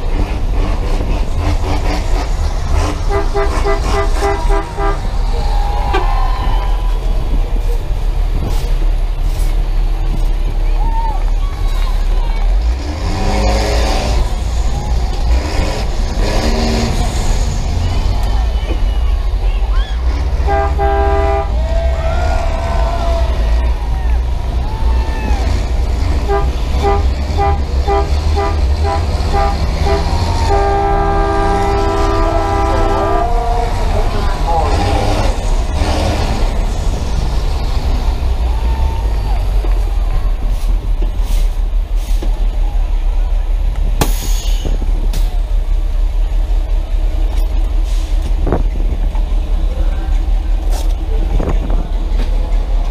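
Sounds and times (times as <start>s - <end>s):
bus engine rumble: 0.0s - 52.9s
bus air horn honking: 3.0s - 6.3s, 20.3s - 21.6s, 26.2s - 34.0s.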